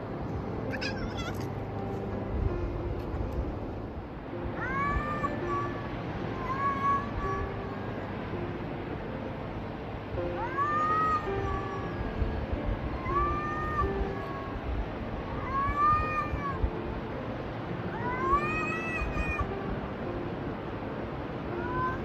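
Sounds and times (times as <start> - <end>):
cat meowing: 0.7 - 1.5.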